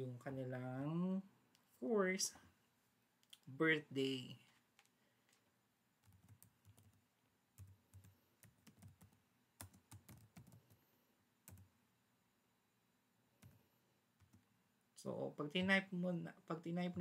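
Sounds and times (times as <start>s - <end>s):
faint keyboard typing: 4.4s - 11.9s, 13.3s - 14.6s.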